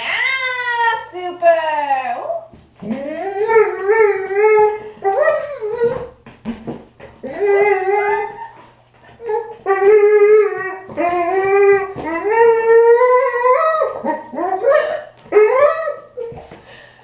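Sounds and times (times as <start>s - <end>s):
dog howl-whining: 2.8s - 6.2s, 7.2s - 16.3s.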